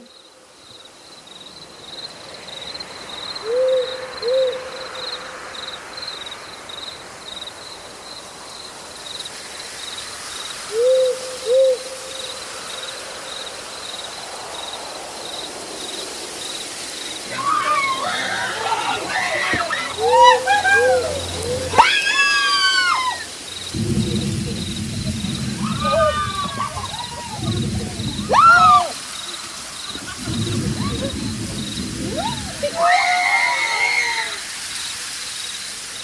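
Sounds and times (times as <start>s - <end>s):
crickets chirping: 0.0s - 36.0s
owl hooting: 3.5s - 4.8s, 10.7s - 12.0s.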